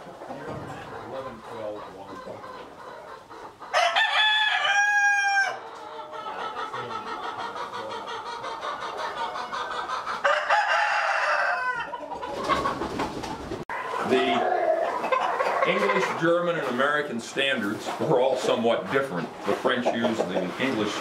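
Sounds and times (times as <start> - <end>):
hens clucking: 0.0 - 21.0
rooster crowing: 3.7 - 5.6, 10.2 - 11.9.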